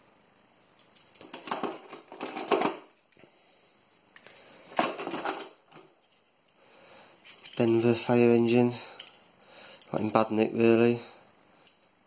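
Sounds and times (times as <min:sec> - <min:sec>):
metal toy cars clattering: 0:00.8 - 0:02.9, 0:04.7 - 0:06.2.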